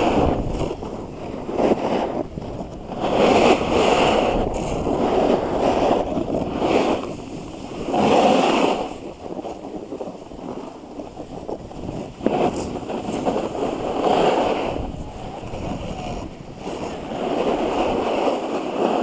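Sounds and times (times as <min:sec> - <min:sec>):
skis sliding over packed snow: 0:00.0 - 0:19.0
wind rushing over microphone: 0:00.0 - 0:19.0.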